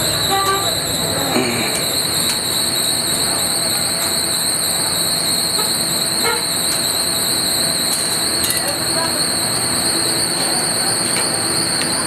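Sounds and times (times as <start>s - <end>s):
high-pitched whine: 0.0s - 5.9s.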